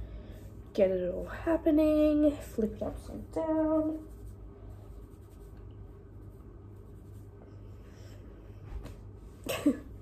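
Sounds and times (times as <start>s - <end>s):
steady low hum: 0.0s - 10.0s
hands rustling curly hair: 2.4s - 7.6s.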